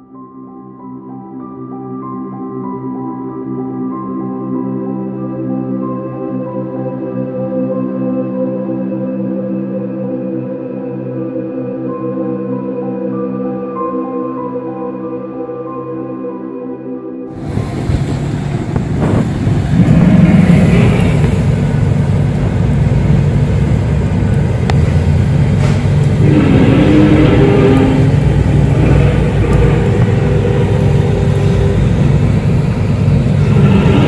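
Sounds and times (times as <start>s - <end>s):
loud low rumble: 17.3s - 34.0s
higher wavering tones: 17.4s - 34.0s.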